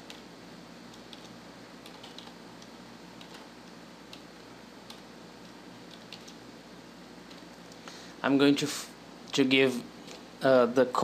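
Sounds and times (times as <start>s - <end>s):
faint steady hum: 0.0s - 11.0s
keyboard typing: 0.9s - 6.4s, 7.2s - 7.6s.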